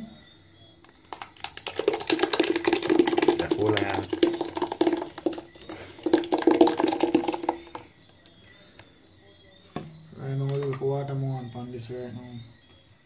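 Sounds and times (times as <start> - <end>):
thick liquid pouring and splashing: 0.8 - 8.4.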